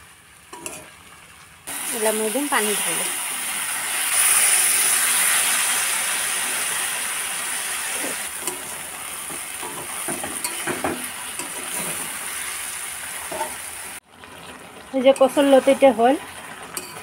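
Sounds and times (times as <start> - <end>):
metal spatula scraping pan: 0.6 - 1.0, 7.9 - 12.3, 13.2 - 13.7
water hissing in hot pan: 1.7 - 17.0.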